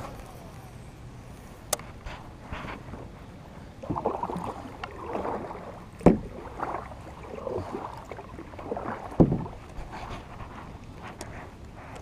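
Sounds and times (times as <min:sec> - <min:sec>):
kayak paddle splashing in water: 0:03.8 - 0:10.2.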